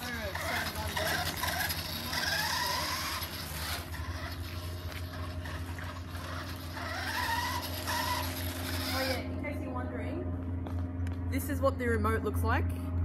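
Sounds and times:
toy car electric motor whirring: 0.0 - 9.3.

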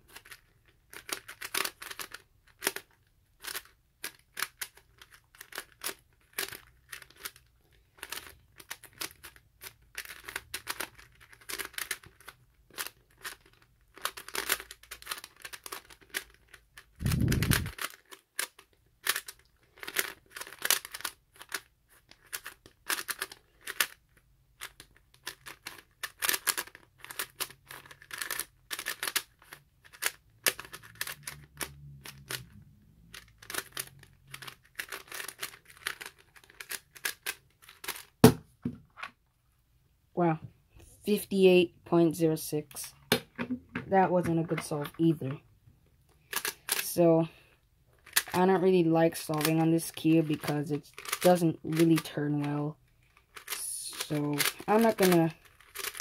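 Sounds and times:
puzzle cube clicking: 0.1 - 38.4, 46.2 - 47.0, 48.0 - 48.5, 49.2 - 52.4, 53.0 - 56.0.

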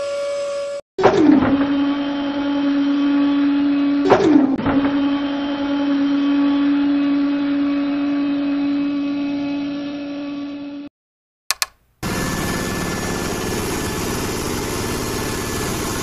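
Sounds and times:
small electric motor whine: 4.9 - 10.9
sharp click: 11.5 - 11.9.

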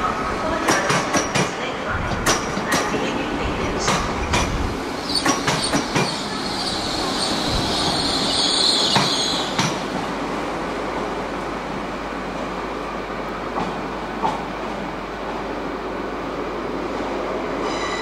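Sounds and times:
train wheels clacking over rail joints: 0.6 - 3.0, 5.2 - 6.2.

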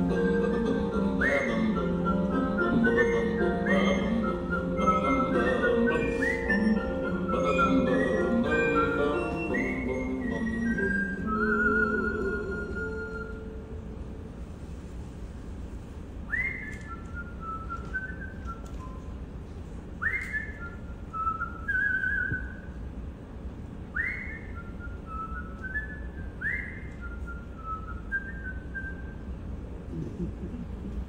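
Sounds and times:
person whistling a tune: 1.0 - 13.5, 16.3 - 19.1, 20.0 - 22.7, 23.9 - 29.3.

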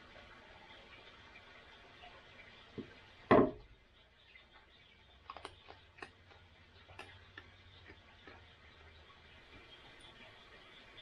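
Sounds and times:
sharp knock on wooden deck: 3.3 - 3.6
raccoon eating dry food clicks: 4.6 - 8.7.

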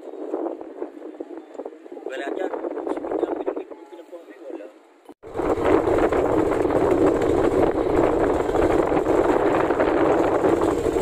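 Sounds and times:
engine droning: 5.2 - 11.0.

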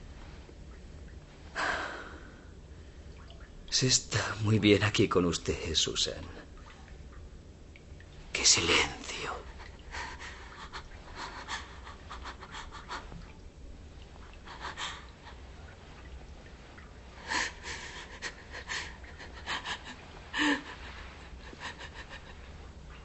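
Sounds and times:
woman panting and gasping: 9.7 - 13.2.

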